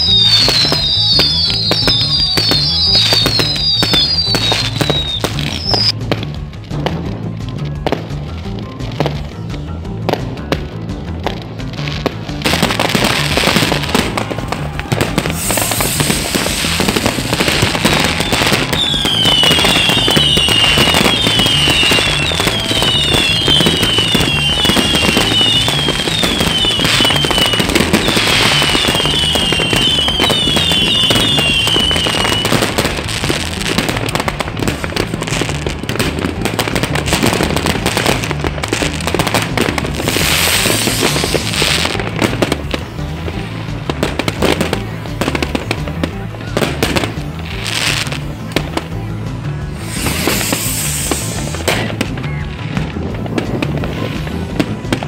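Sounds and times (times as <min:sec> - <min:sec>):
falling firework whistles: 0:00.0 - 0:06.0, 0:12.6 - 0:34.0, 0:36.6 - 0:42.5, 0:49.7 - 0:52.1
fireworks bursting and crackling: 0:00.0 - 0:55.0.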